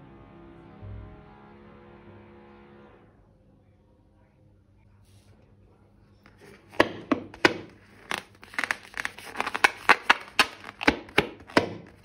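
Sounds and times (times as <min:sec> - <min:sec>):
slime crackling and crinkling: 0:06.3 - 0:12.0.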